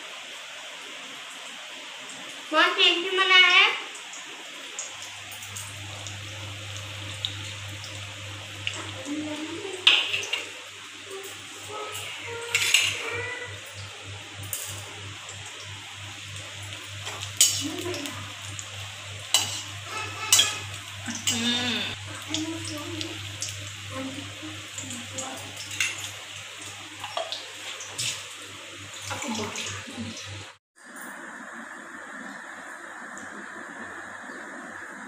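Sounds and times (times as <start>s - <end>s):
food sizzling in hot oil: 0.0s - 30.6s
low steady hum: 4.0s - 30.5s.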